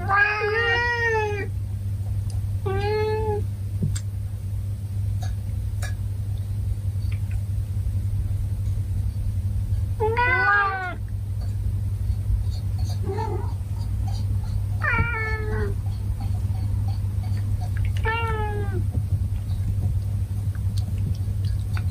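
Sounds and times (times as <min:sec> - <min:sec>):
cats meowing: 0:00.0 - 0:01.5, 0:02.6 - 0:03.5, 0:10.0 - 0:11.1, 0:12.8 - 0:15.9, 0:17.6 - 0:19.0
steady low hum: 0:00.0 - 0:21.9.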